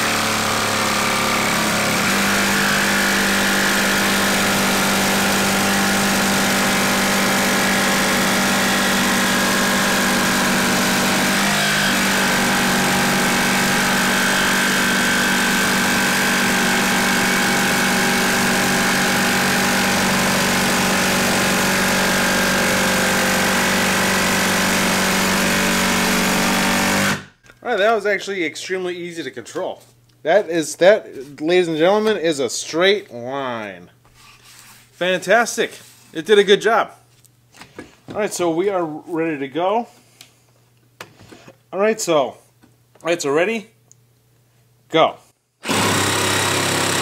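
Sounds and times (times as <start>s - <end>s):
jigsaw cutting wood: 0.0s - 27.4s, 45.6s - 47.0s.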